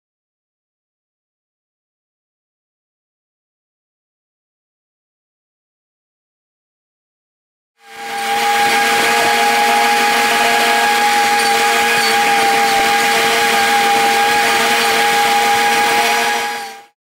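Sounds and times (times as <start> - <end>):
small engine running at high speed: 7.8 - 17.0.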